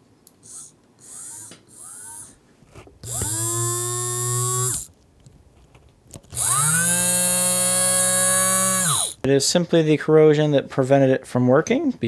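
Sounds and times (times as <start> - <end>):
small electric motor whining: 0.4 - 2.4, 3.0 - 4.9, 6.3 - 9.2.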